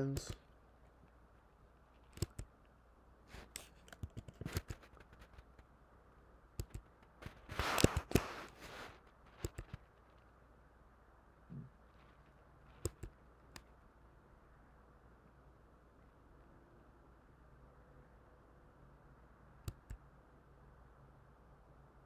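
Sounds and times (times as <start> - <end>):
computer keyboard typing: 0.0 - 0.5, 1.9 - 2.5, 3.4 - 5.6, 6.6 - 8.4, 9.3 - 10.0, 12.7 - 13.7, 19.6 - 20.0.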